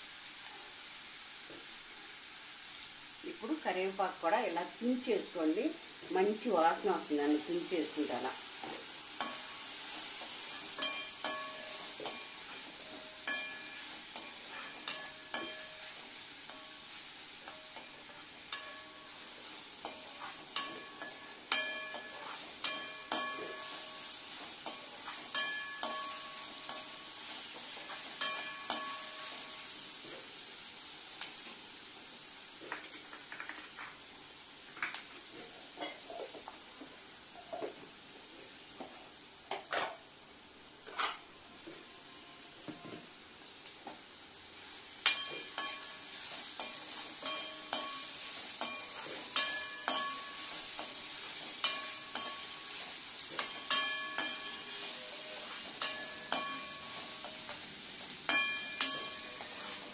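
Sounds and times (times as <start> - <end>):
vegetables sizzling in hot oil: 0.0 - 59.9
steel spoon scraping a pan: 8.6 - 30.3, 45.0 - 59.9.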